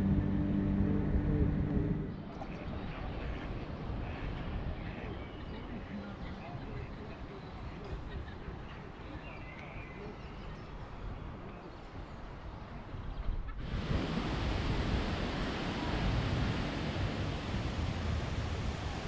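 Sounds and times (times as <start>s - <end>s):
wind on microphone: 10.4s - 19.0s.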